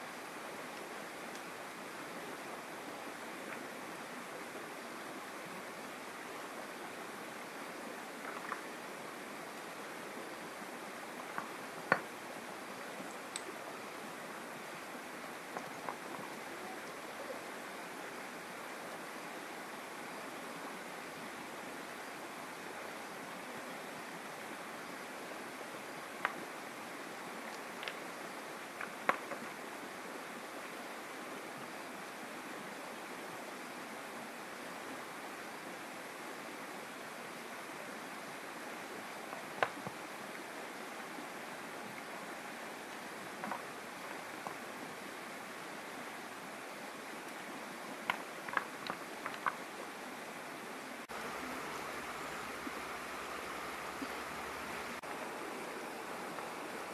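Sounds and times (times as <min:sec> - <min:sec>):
river flowing over rocks: 0:00.0 - 0:56.9.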